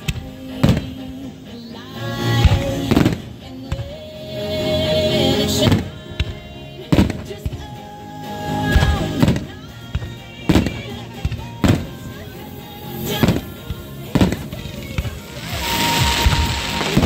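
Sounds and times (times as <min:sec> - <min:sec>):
music playing: 0:00.0 - 0:17.0
crackling hiss: 0:10.6 - 0:17.0
firework shells bursting: 0:12.9 - 0:17.0.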